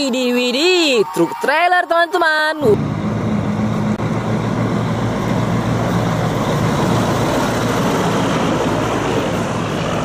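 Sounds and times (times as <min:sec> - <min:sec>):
truck diesel engine running: 0:02.7 - 0:10.0.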